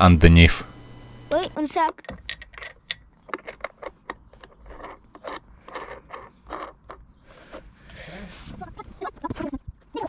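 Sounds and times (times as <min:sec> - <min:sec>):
metal nut scraping on bolt: 0:02.3 - 0:07.1.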